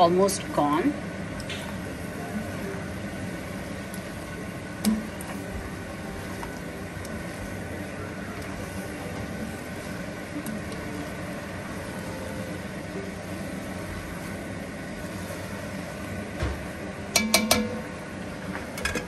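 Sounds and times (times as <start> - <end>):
steady background noise: 0.0 - 19.0
tongs clinking against pot: 17.2 - 17.8.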